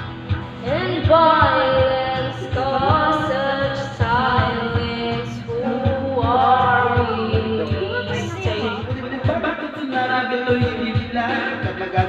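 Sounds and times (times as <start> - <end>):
backing track with steady beat: 0.0 - 12.0
girl singing into a microphone: 0.6 - 8.8.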